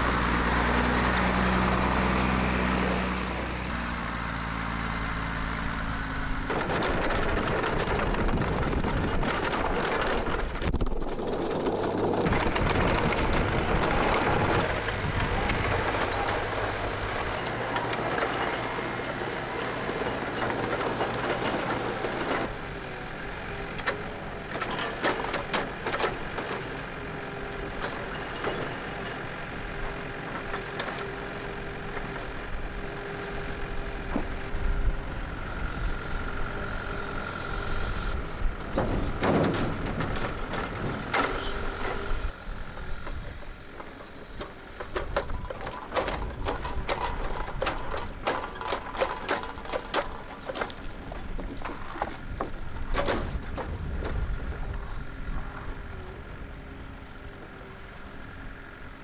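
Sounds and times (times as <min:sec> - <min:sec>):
diesel engines running: 0:00.0 - 0:59.0
hydraulic grapple steady tone: 0:00.0 - 0:59.0
logs knocking: 0:43.1 - 0:54.6.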